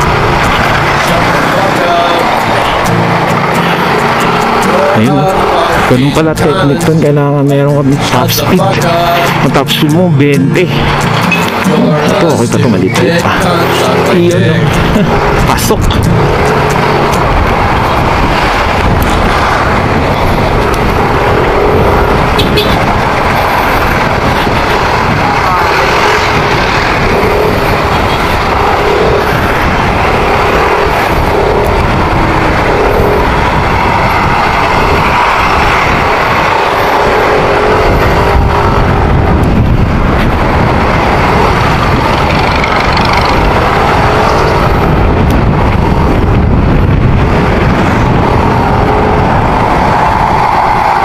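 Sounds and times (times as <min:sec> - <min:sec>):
wind rush over microphone: 0:00.0 - 0:51.0
motorcycle engine running: 0:13.1 - 0:51.0.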